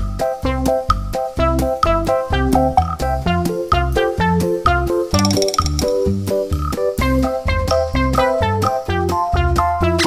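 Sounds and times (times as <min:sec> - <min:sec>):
upbeat background music: 0:00.0 - 0:10.0.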